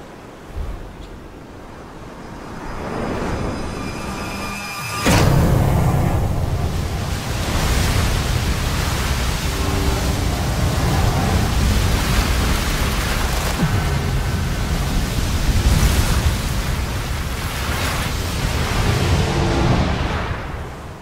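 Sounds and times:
waves churning and breaking: 5.1 - 21.0.

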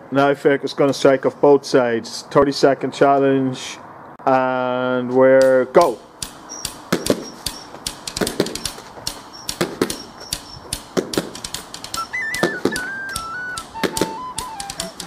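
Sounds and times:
stick striking ball against wall: 5.4 - 15.0
flute-like melody: 11.9 - 15.0.

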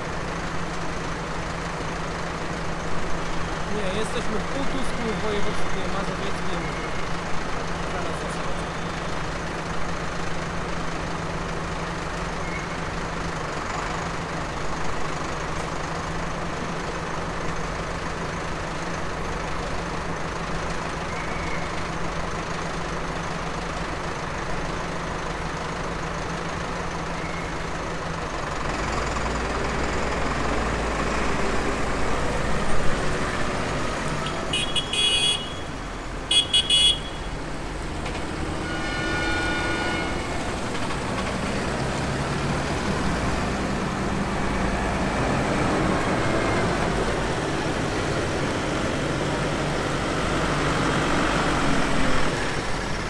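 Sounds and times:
heavy engine rumble: 0.0 - 53.0
tractor engines humming: 0.0 - 53.0
horn toots: 34.3 - 35.7, 36.3 - 37.3, 38.5 - 40.4.

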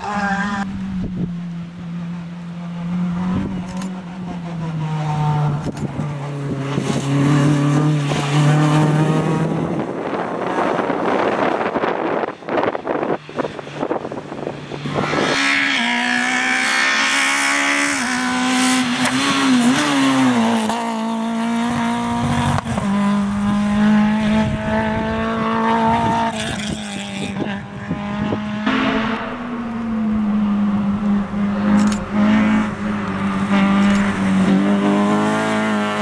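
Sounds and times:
rally car engines at high revs: 0.0 - 29.3, 30.0 - 36.0.

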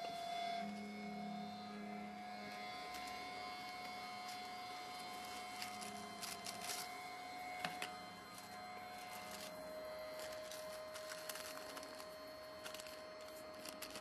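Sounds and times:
electrical hum: 0.0 - 14.0
paper rustling: 4.2 - 7.0, 7.6 - 14.0.

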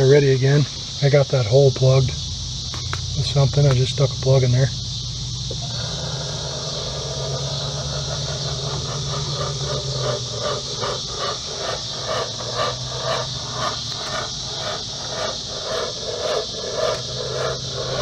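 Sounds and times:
insects chorus: 0.0 - 18.0
smoke machine buzzing: 4.8 - 18.0.

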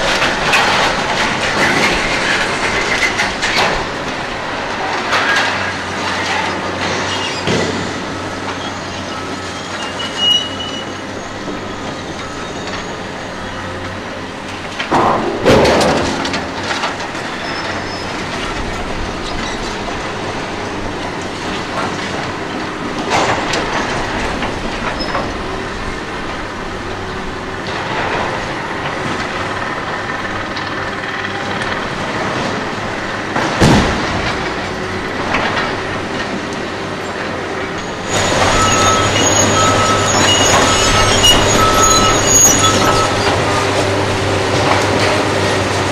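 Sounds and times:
debris crashing down: 0.0 - 8.0, 14.6 - 26.9, 31.8 - 45.3
excavators running: 0.0 - 45.9.

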